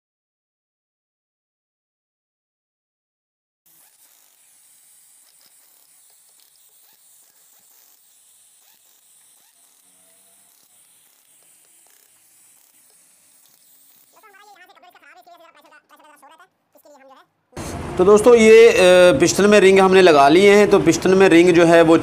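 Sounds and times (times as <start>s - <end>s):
faint steady hiss: 3.7s - 17.8s.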